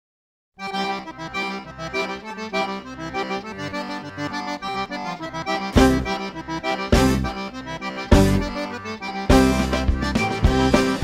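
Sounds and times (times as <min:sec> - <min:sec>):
background music with held chords: 0:00.6 - 0:11.0.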